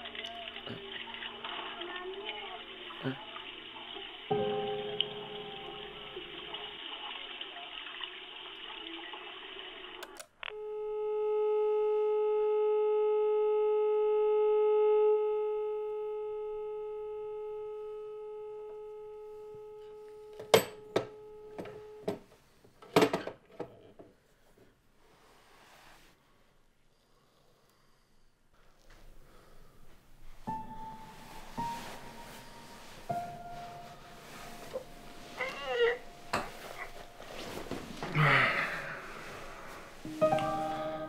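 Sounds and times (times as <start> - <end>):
dial tone: 10.4 - 22.1
telephone line hiss: 10.4 - 22.1.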